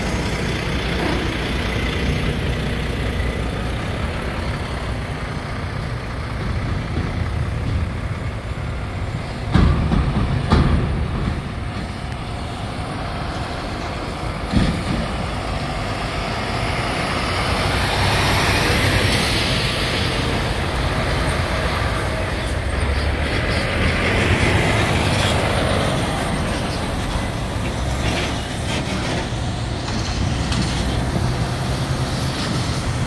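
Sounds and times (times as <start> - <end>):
diesel trucks rumbling: 0.0 - 33.0
tractor-trailer passing close: 0.0 - 33.0.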